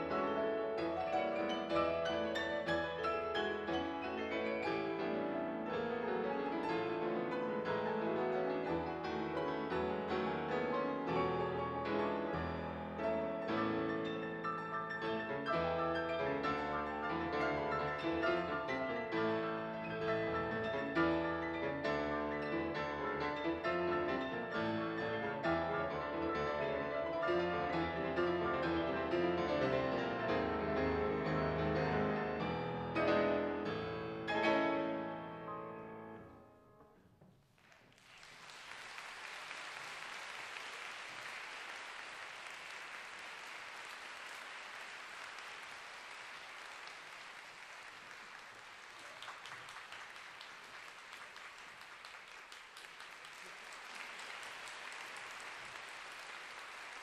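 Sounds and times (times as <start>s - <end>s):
two grand pianos playing: 0.0s - 37.1s
audience applause: 37.5s - 57.0s.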